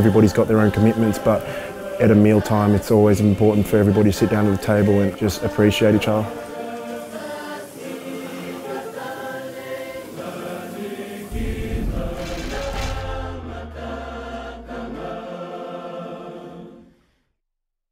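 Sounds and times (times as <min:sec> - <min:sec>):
choral singing: 0:00.0 - 0:17.2
deep low tone: 0:11.3 - 0:15.2.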